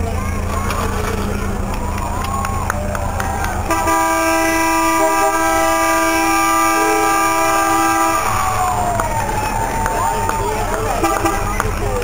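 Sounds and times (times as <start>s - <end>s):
multi-tone horn blast: 3.7s - 8.6s, 10.9s - 11.6s.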